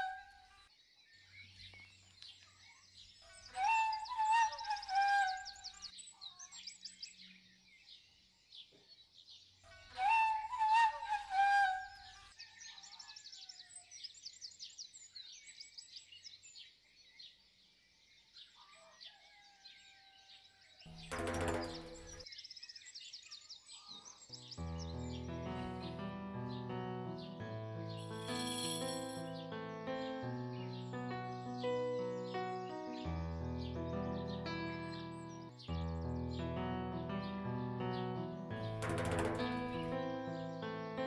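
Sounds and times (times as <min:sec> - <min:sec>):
birds chirping and singing: 0:00.0 - 0:36.5
wavering flute-like phrases: 0:03.5 - 0:05.8, 0:09.9 - 0:12.2.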